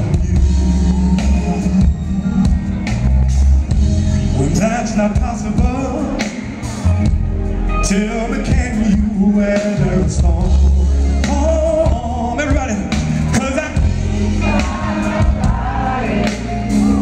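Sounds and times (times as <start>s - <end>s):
drums: 0.0s - 17.0s
electric bass low notes: 0.0s - 17.0s
man singing through pa: 4.4s - 6.7s, 7.8s - 15.5s.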